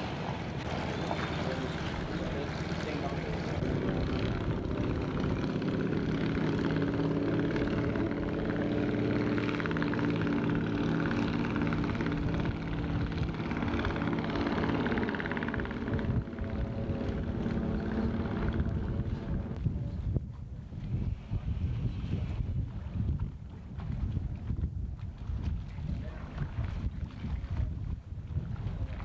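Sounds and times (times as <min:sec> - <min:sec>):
engine droning hum: 0:00.0 - 0:19.9.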